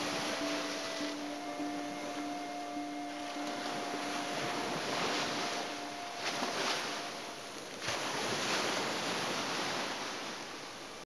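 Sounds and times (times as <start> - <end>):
ocean waves crashing on rocks: 0.0 - 11.0.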